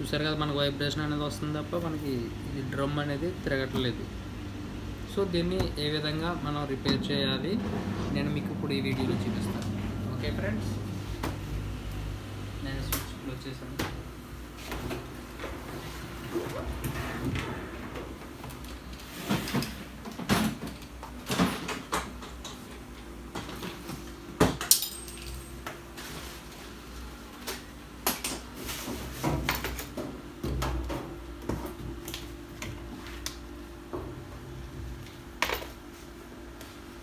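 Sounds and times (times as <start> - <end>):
steady low hum: 0.0 - 21.3.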